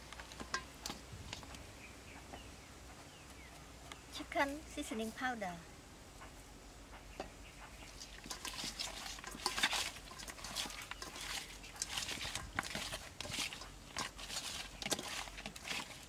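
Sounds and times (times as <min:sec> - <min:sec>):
wet meat squishing in metal bowl: 0:07.7 - 0:16.0.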